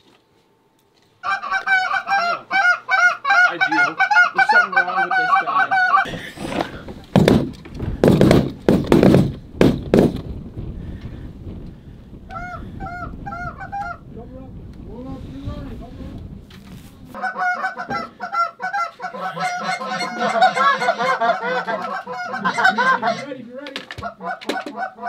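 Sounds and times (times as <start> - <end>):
goose call honks and clucks: 1.2 - 6.7, 12.3 - 14.0, 17.2 - 25.0
loud thumps: 6.1 - 10.8.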